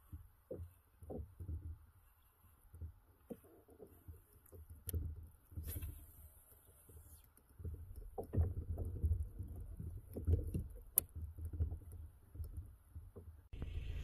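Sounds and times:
bumps and knocks on kayak: 7.7s - 13.5s.

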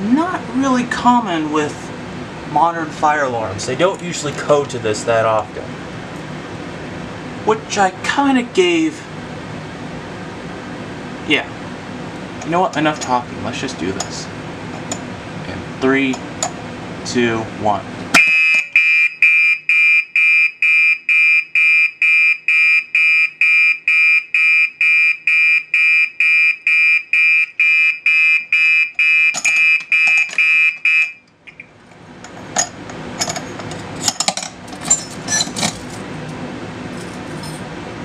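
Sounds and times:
fire alarm horn beeping: 18.2s - 31.3s
key clicking and rattling: 37.0s - 37.6s.

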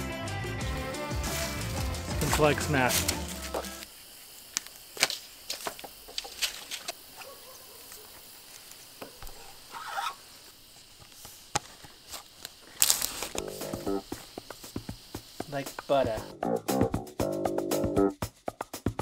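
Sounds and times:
garden shears cutting plastic tubing: 1.3s - 3.9s, 4.5s - 7.5s, 8.5s - 10.2s, 11.0s - 14.4s.

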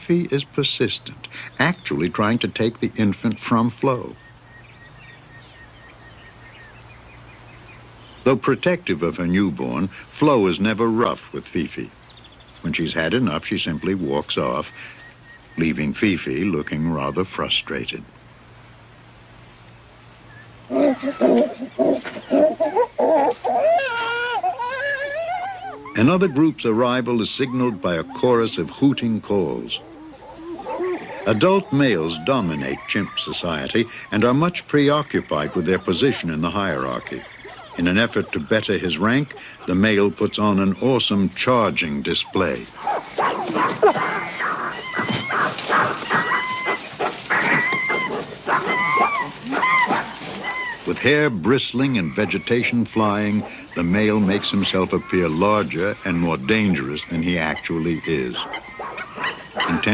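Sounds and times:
chimpanzees hooting: 20.7s - 59.9s.

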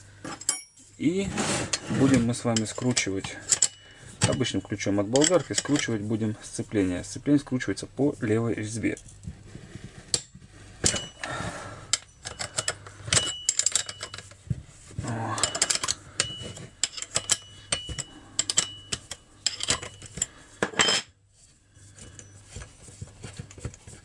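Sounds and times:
metal clicking and knocking: 11.9s - 14.4s, 15.4s - 20.9s.

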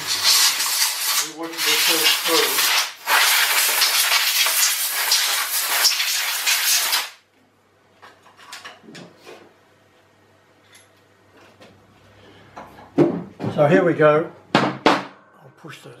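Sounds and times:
compressed air blow gun hissing: 0.0s - 7.2s.

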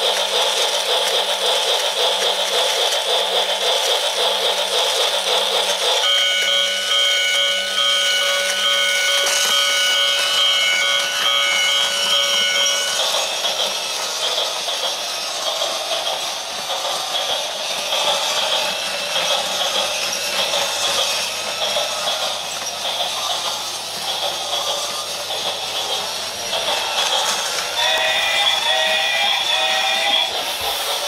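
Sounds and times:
toy train running on track: 0.0s - 31.0s.

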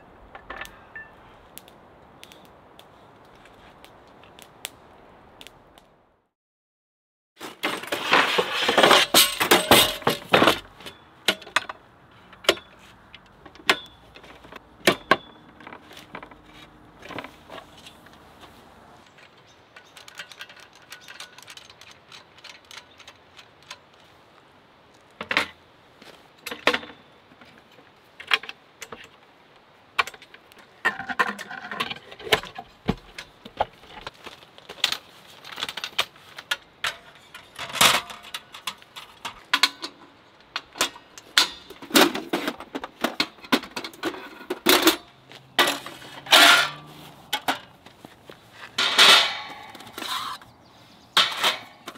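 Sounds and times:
metal table frame clinking and rattling: 8.8s - 10.6s, 45.6s - 47.6s.

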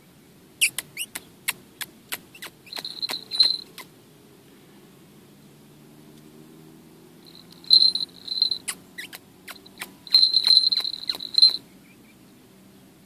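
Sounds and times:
bell jingling: 2.7s - 3.8s, 7.3s - 8.8s, 9.5s - 11.6s.

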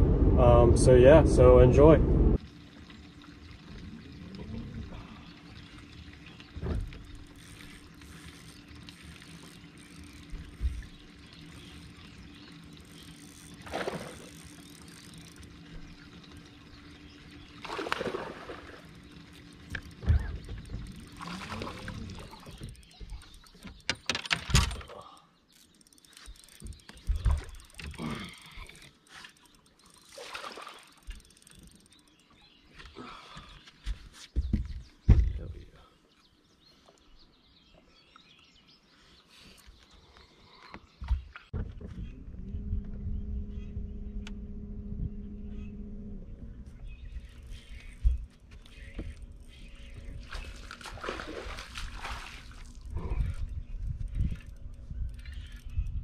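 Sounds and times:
water splashes: 2.4s - 14.7s, 17.4s - 23.3s, 30.0s - 31.6s, 50.2s - 53.4s
knocks on boat: 34.4s - 35.4s
faint low hum: 41.6s - 56.0s.

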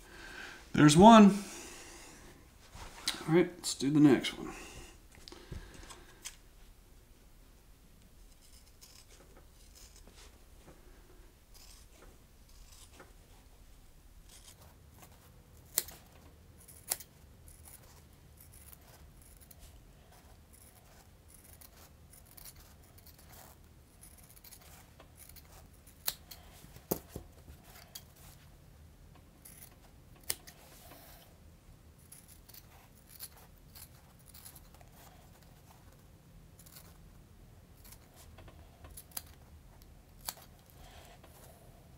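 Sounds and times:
scissors cutting foam: 8.2s - 10.4s, 11.4s - 13.2s, 14.2s - 28.4s, 29.4s - 31.2s, 32.0s - 36.0s, 36.6s - 37.0s, 37.8s - 41.4s.

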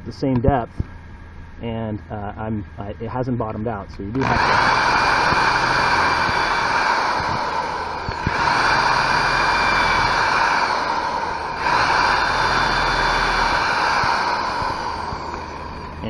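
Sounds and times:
electric drill whining: 4.2s - 16.0s.

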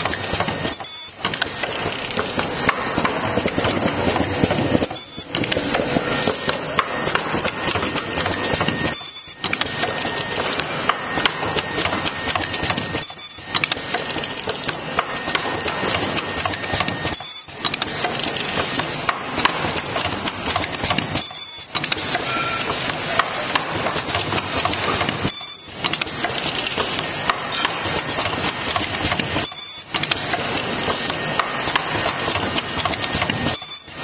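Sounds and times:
machine mechanical clatter: 0.0s - 34.0s
sharp pneumatic clicks: 0.0s - 34.0s.

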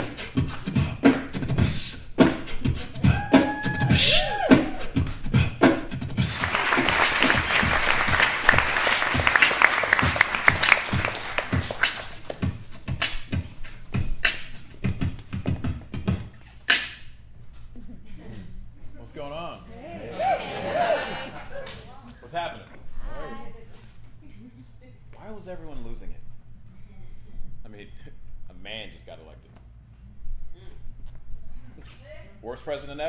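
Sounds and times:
beatboxing low thumps: 0.0s - 17.2s.

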